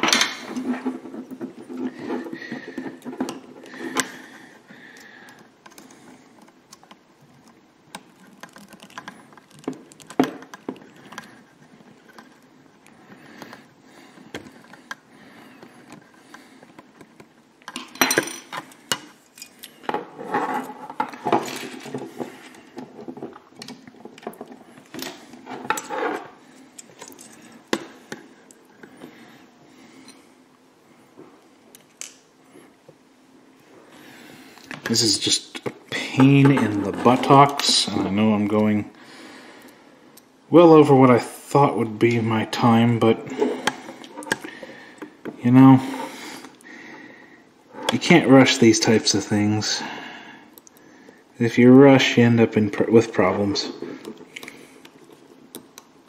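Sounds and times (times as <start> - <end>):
plastic parts clicking and tapping: 5.3 - 11.3.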